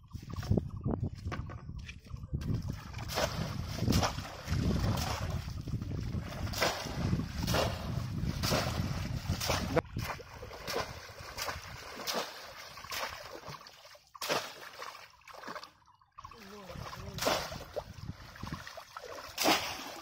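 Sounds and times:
wind on microphone: 0.0s - 12.2s, 16.6s - 18.9s
fish trap splashing into water: 3.0s - 5.4s, 6.4s - 20.0s.

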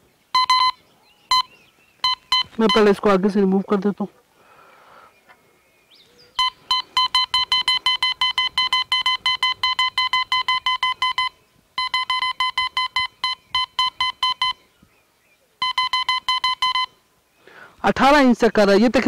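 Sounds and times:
metal detector beeping: 0.3s - 3.2s, 6.4s - 14.6s, 15.6s - 17.0s.

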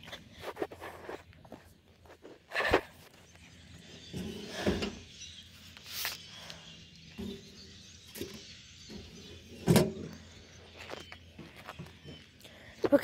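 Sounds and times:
mailbox clunk: 9.6s - 10.1s.

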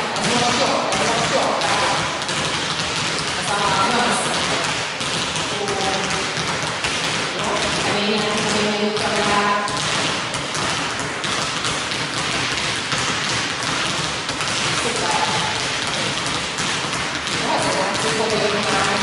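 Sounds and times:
basketballs bouncing on hardwood: 0.0s - 19.0s.

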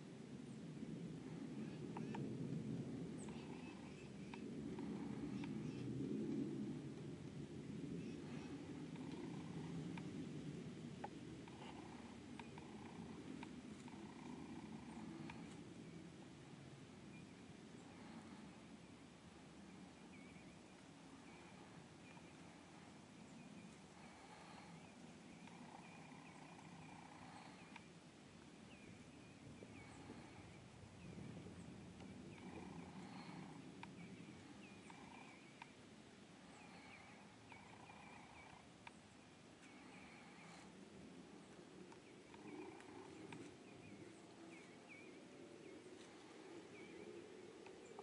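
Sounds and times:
low background hum: 0.0s - 48.0s
faint clicks: 11.0s - 15.6s, 27.5s - 27.9s, 34.9s - 35.8s, 36.8s - 39.0s.

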